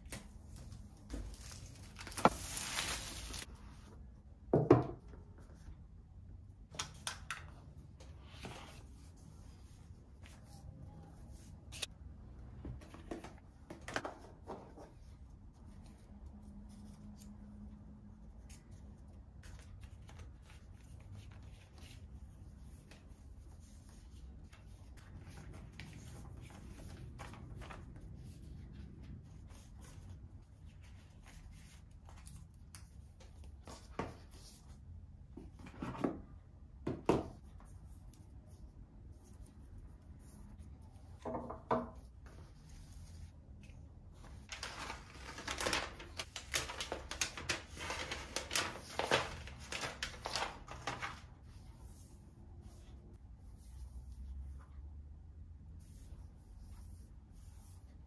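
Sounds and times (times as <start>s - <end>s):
cardboard and paper rustling: 0.0s - 3.5s, 44.2s - 52.2s.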